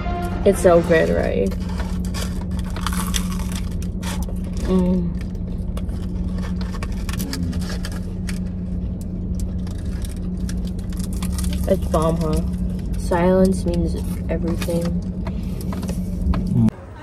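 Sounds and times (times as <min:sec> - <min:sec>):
car cabin engine hum: 0:00.0 - 0:17.0
crisp pie crust crunching: 0:01.5 - 0:13.0
person humming: 0:07.2 - 0:07.6, 0:16.5 - 0:16.8.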